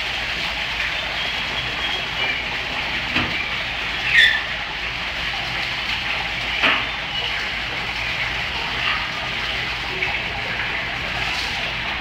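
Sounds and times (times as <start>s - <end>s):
waterfall rushing into pool: 0.0s - 12.0s
short high squeak: 4.1s - 4.5s.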